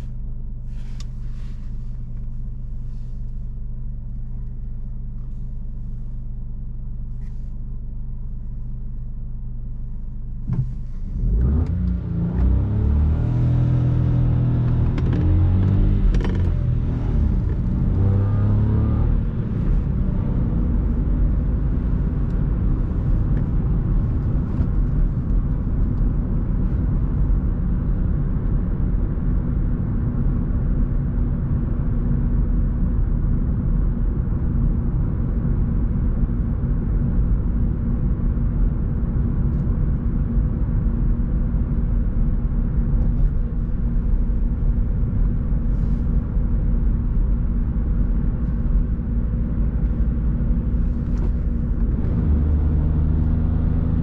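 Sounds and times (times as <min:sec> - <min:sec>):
car engine accelerating: 0:09.6 - 0:30.3, 0:40.9 - 0:54.0
tyre and road rumble: 0:10.4 - 0:28.8, 0:39.6 - 0:54.0.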